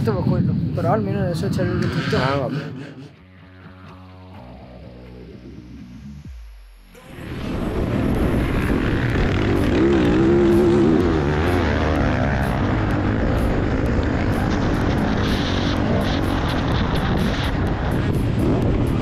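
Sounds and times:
motorbike engine revving: 7.0s - 19.0s.

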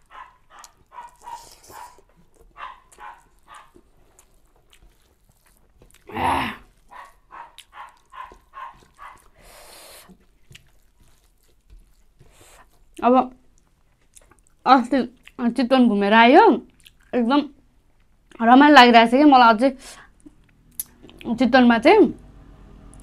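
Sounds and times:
dog barking: 0.0s - 3.8s, 6.9s - 9.3s.

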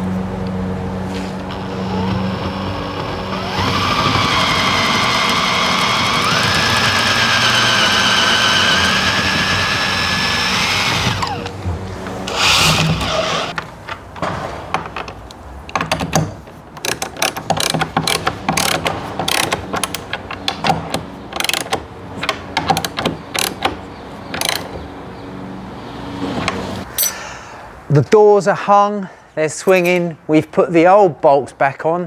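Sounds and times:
cordless drill whirring into wood: 1.4s - 11.5s, 12.3s - 13.6s
sharp clicks and knocks: 11.0s - 24.9s.

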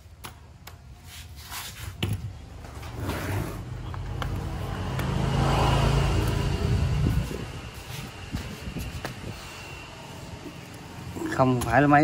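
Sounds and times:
vehicle engine hum: 2.5s - 12.0s.

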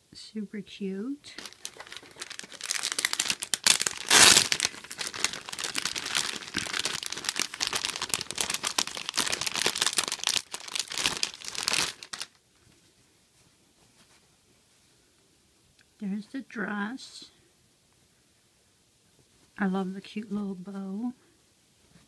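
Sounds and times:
plastic bags crinkling: 1.2s - 12.4s.

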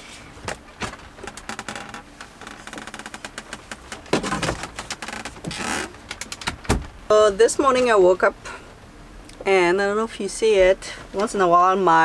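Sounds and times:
cabinet door creak: 0.8s - 7.0s.

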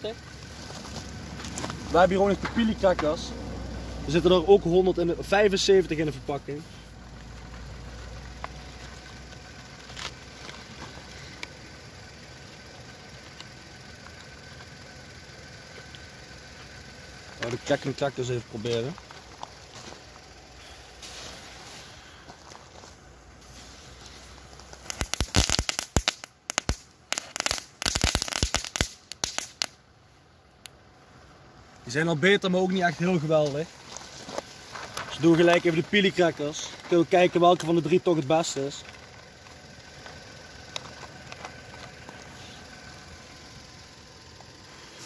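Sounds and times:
low engine-like hum: 0.0s - 45.0s
firecracker crackling and popping: 17.4s - 22.8s, 23.4s - 29.9s, 32.8s - 45.0s.

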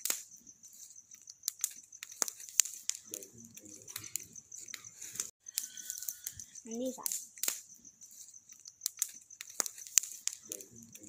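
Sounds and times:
faint steady hiss: 0.0s - 5.3s
bonfire crackling: 0.0s - 11.0s.

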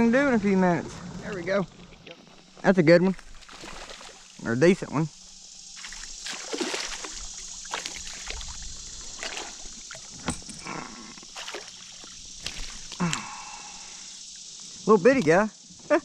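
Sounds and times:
water splashing and sloshing: 0.4s - 4.4s, 5.2s - 14.7s.

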